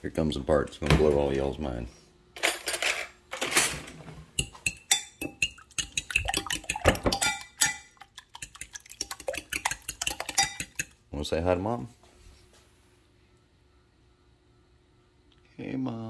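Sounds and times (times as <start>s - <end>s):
fork clinking against glass: 4.4s - 8.6s, 9.4s - 10.9s.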